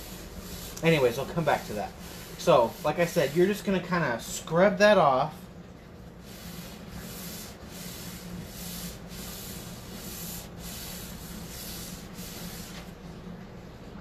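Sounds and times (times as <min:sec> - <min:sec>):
rag rubbing wooden tabletop: 0:00.0 - 0:03.9, 0:06.2 - 0:13.0.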